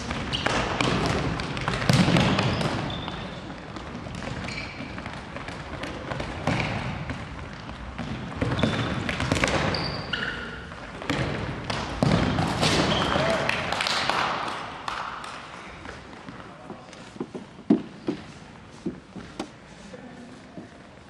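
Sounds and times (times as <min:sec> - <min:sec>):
ball kicked and bouncing: 0:00.0 - 0:03.1, 0:03.7 - 0:09.9, 0:10.9 - 0:13.0
sneaker squeaks: 0:00.0 - 0:07.0, 0:08.0 - 0:11.4, 0:12.0 - 0:13.4.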